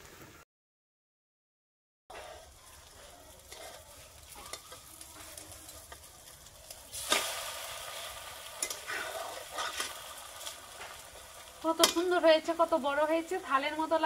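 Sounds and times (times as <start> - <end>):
metal spatula scraping pan: 2.1 - 5.9, 8.6 - 10.1
omelette sizzling in oil: 2.1 - 14.0.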